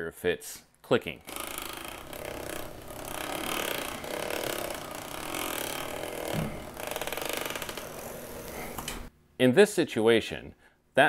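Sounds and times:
bike belt drive clicking: 1.2 - 9.1.

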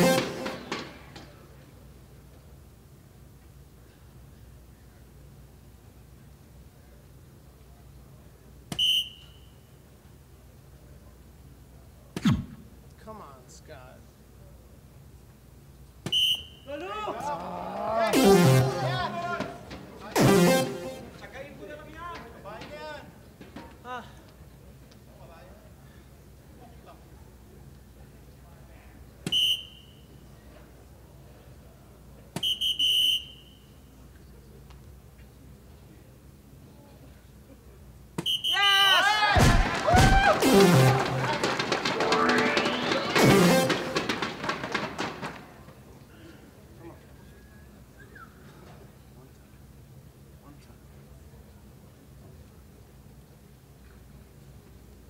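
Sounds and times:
electronic tone falling in pitch: 18.0 - 19.4, 20.2 - 21.2, 40.2 - 44.1.

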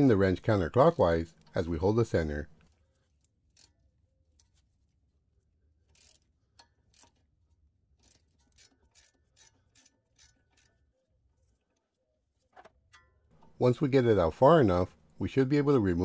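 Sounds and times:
ratcheting wrench clicking: 2.6 - 4.6, 5.8 - 10.9.

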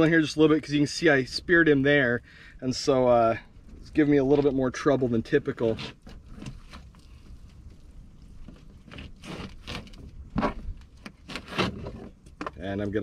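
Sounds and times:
knife scraping fish backbone: 8.4 - 12.2.

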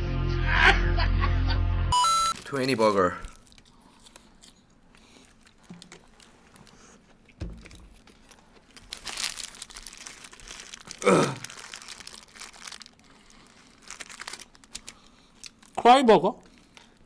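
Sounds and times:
paper wrappers crinkling: 2.3 - 17.0
dull thump: 7.4 - 7.9.

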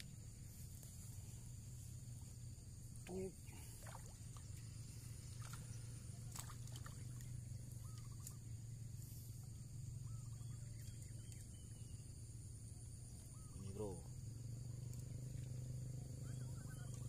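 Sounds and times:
high insect drone: 0.0 - 17.0
low hum: 0.0 - 17.0
bird chirps: 7.0 - 14.1, 15.0 - 17.0.

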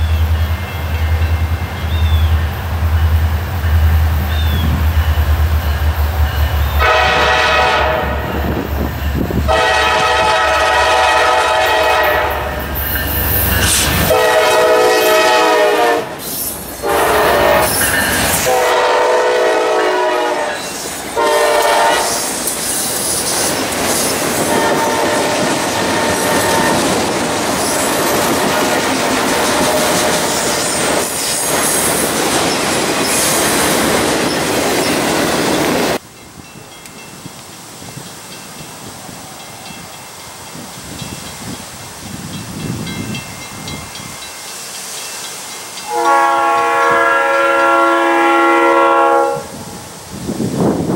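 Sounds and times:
locomotive air horn blasts: 6.8 - 8.5, 9.5 - 12.7, 14.0 - 16.2, 16.8 - 22.3, 24.4 - 26.9, 29.3 - 30.4, 45.8 - 49.8.

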